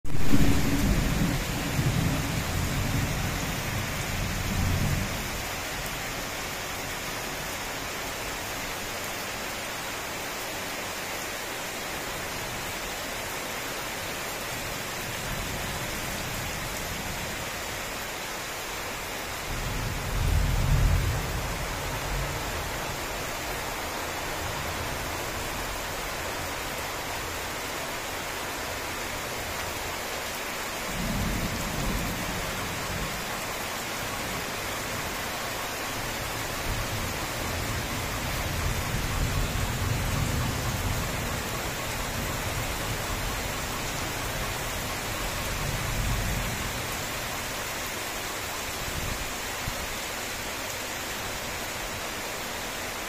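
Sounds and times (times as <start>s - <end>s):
heavy rain: 0.0s - 53.0s
rolling thunder: 0.1s - 5.2s.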